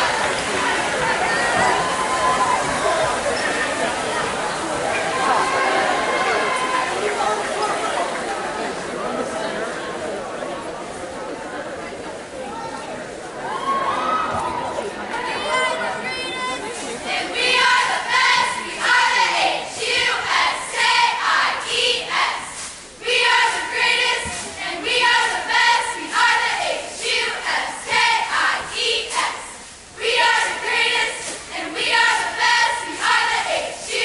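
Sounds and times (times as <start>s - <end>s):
cheerleaders shouting in unison: 0.0s - 3.3s, 13.4s - 34.0s.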